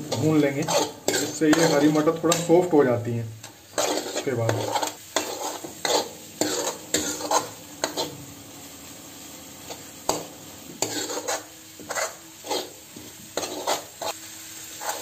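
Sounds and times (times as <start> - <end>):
metal ladle scraping a pan: 0.0 - 2.6, 3.4 - 8.2, 9.7 - 14.2
low frying sizzle: 0.0 - 15.0.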